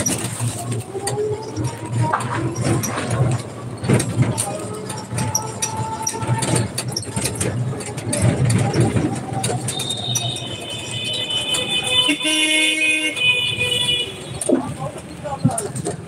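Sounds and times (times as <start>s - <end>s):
body rattles and knocks: 0.0s - 12.0s.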